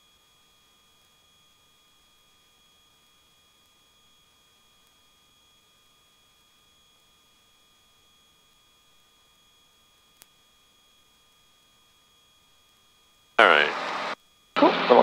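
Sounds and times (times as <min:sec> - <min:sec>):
faint steady hiss: 0:13.4 - 0:15.0.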